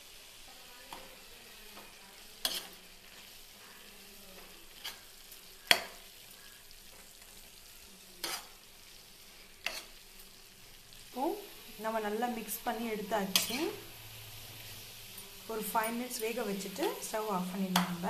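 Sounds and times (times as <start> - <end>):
faint sizzle: 0.0 - 18.0
spoon scraping pan: 1.7 - 3.3, 4.4 - 6.1, 8.2 - 8.7, 9.5 - 10.1, 13.2 - 13.9.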